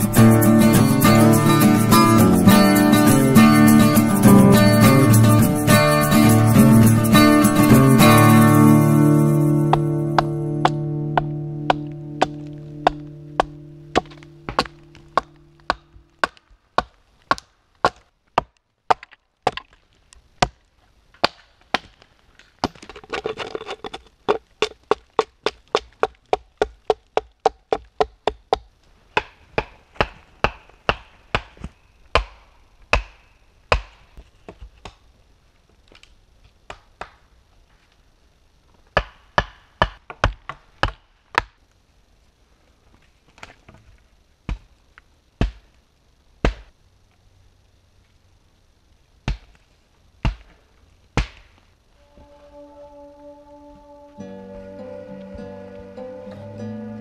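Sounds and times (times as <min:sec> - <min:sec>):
hatchet chopping wooden posts: 0:09.7 - 0:19.8, 0:21.2 - 0:35.0, 0:36.7 - 0:37.2, 0:38.9 - 0:41.6, 0:45.4 - 0:45.7, 0:46.4 - 0:46.7, 0:49.2 - 0:49.6, 0:50.2 - 0:50.6, 0:51.2 - 0:51.5.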